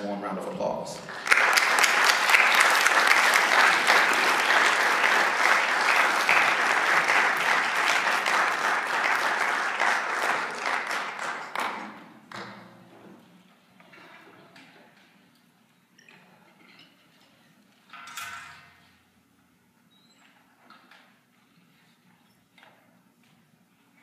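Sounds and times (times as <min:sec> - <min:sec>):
audience applauding: 0:01.1 - 0:12.4.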